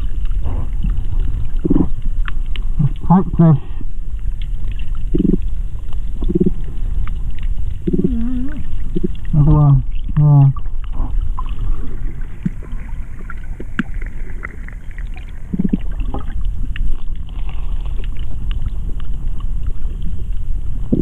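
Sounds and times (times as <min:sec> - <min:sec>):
faint clicks and crackles: 0:00.0 - 0:03.1, 0:03.7 - 0:21.0
underwater rumble of moving water: 0:00.0 - 0:21.0
muffled voice: 0:02.8 - 0:03.7, 0:09.4 - 0:10.6.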